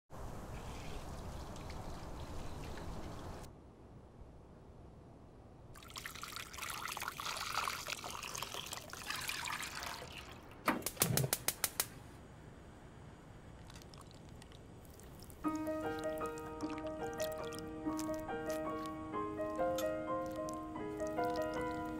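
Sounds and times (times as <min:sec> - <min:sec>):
milk pouring into a pan: 0:05.8 - 0:10.4
sharp clicks: 0:10.8 - 0:12.0.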